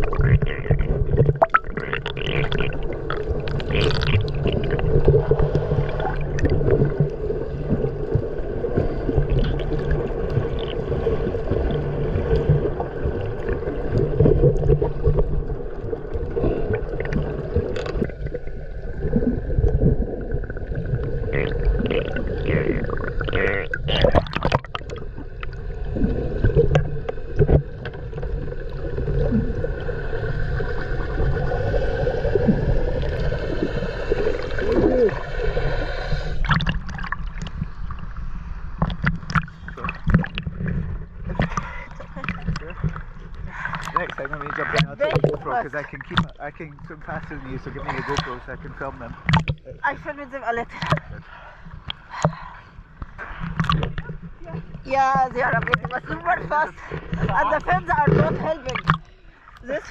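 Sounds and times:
bubble bursts: 0.0s - 6.9s, 21.3s - 24.9s
underwater rushing and gurgling: 0.0s - 59.9s.

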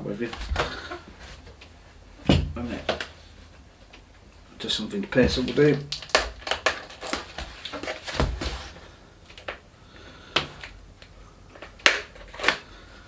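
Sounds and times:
packaging rustling: 5.0s - 9.6s
packaging scrapes and knocks: 6.4s - 8.8s.

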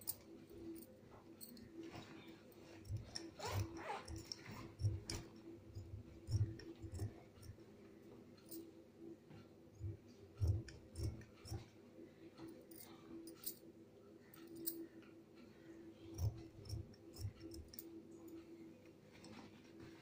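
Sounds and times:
faint steady hum: 0.0s - 20.0s
scissors snipping fabric: 2.8s - 7.6s, 9.8s - 11.7s, 16.1s - 17.9s.

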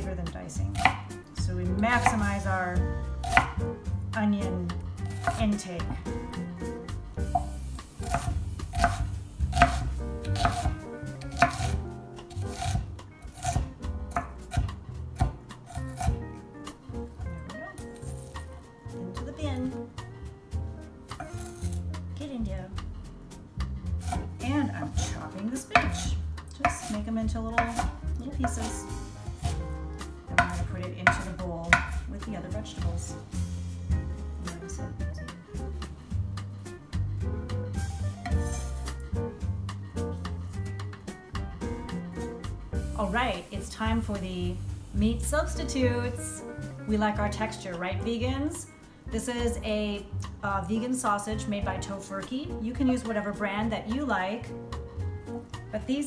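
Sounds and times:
background music: 0.0s - 56.0s
knife chopping on wooden board: 0.7s - 1.2s, 1.8s - 2.4s, 3.2s - 3.6s, 5.0s - 6.0s, 7.2s - 16.2s, 24.0s - 29.6s, 30.3s - 32.1s.

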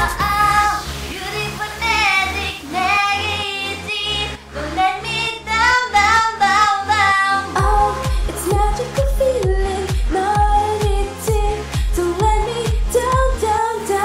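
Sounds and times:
pulsing bass line: 0.0s - 2.7s, 3.4s - 14.0s
women singing pop song: 0.0s - 14.0s
deep booming kick drum: 7.6s - 13.4s.

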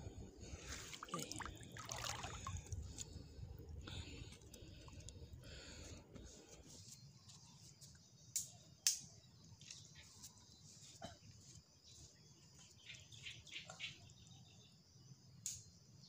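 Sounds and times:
wading through shallow water: 0.5s - 3.6s.

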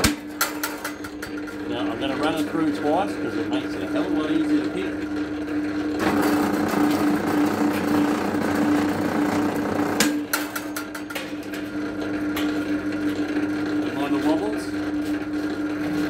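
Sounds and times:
cable-stripping machine motor hum: 4.0s - 13.8s.

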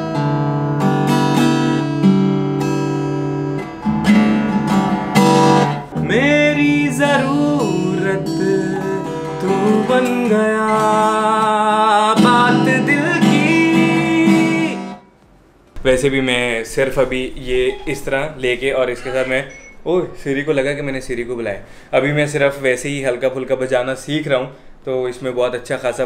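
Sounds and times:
acoustic guitar strumming chords: 0.0s - 15.1s
man singing: 6.0s - 15.0s.

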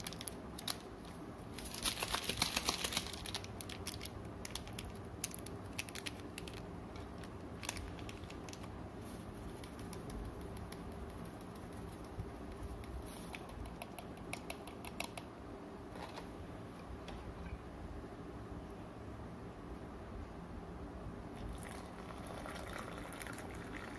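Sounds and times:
plastic sachet crinkling: 0.0s - 12.0s
steady low hum: 0.0s - 23.9s.

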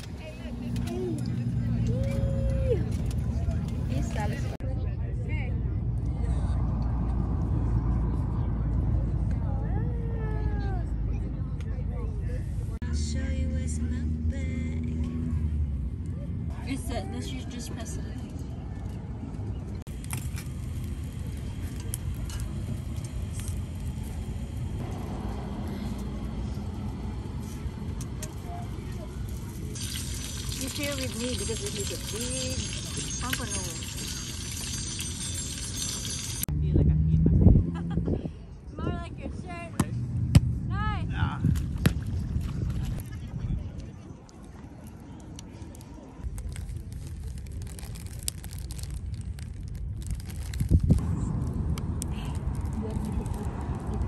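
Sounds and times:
low outdoor rumble: 0.0s - 54.0s
wood fire popping and crackling: 19.9s - 36.5s, 46.3s - 54.0s
wind rumble on microphone: 35.3s - 39.6s, 40.5s - 44.9s, 46.2s - 54.0s
plastic packaging crinkles and clicks: 46.2s - 51.0s.

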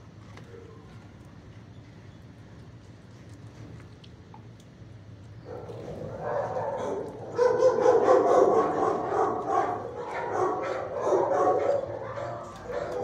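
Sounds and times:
dogs barking: 5.4s - 13.0s.

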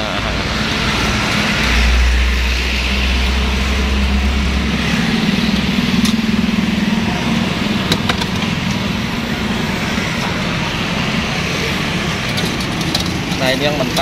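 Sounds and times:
street traffic: 0.0s - 14.0s.

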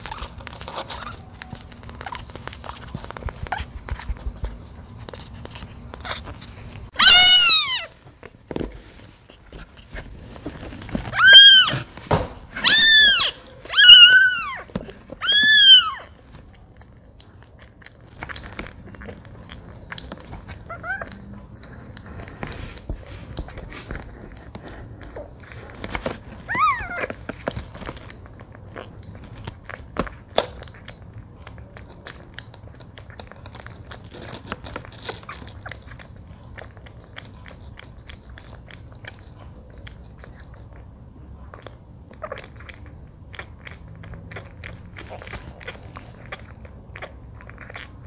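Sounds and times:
kitten crying: 7.0s - 8.0s, 11.1s - 11.9s, 12.6s - 16.2s, 26.5s - 27.1s.

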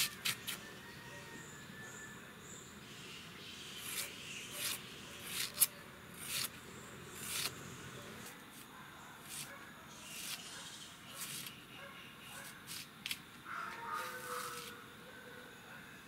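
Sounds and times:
knife slicing onion: 3.7s - 8.4s, 9.2s - 11.6s.

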